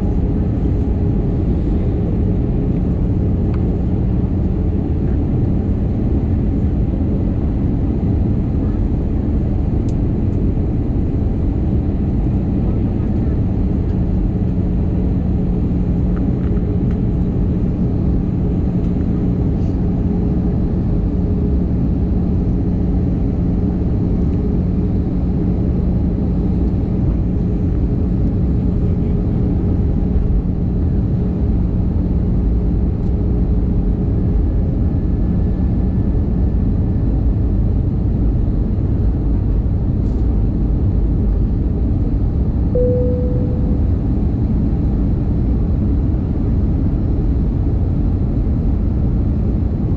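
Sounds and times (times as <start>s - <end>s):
jet engine and rushing air rumble: 0.0s - 49.9s
brief tone: 42.7s - 44.5s
steady hum: 42.7s - 45.7s.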